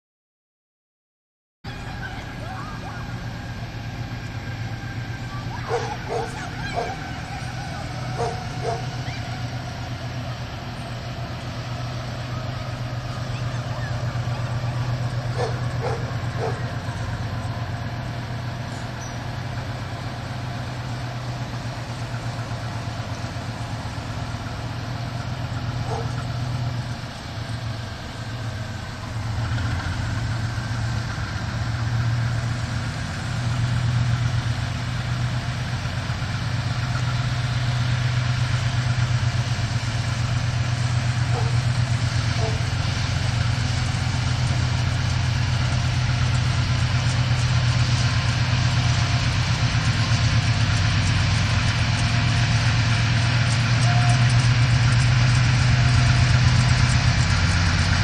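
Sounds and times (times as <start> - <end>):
distant locomotive engine drone: 1.7 - 58.0
dog barking: 5.6 - 7.1, 8.1 - 8.9, 15.4 - 16.7, 25.8 - 26.2, 41.3 - 41.7, 42.4 - 42.7.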